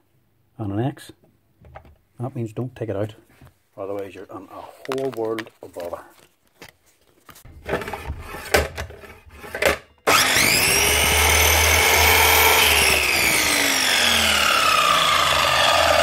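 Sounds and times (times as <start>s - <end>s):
mitre saw motor whine: 10.1s - 16.0s.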